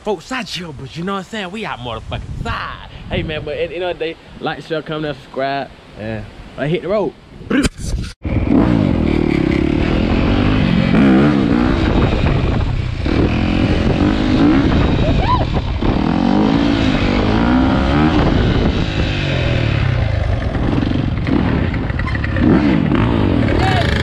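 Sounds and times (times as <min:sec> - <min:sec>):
wind rushing: 0:00.6 - 0:04.6, 0:05.7 - 0:22.0
dirt bike engine revving: 0:08.2 - 0:24.0.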